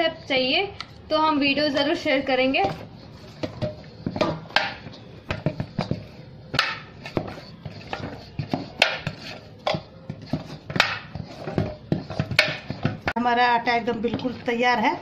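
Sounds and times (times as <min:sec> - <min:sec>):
dough squelching: 0:00.2 - 0:15.0.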